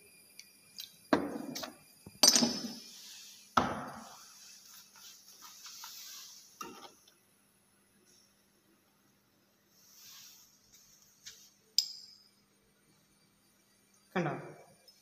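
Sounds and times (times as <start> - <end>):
glass knocks and clinks: 1.1 - 2.8.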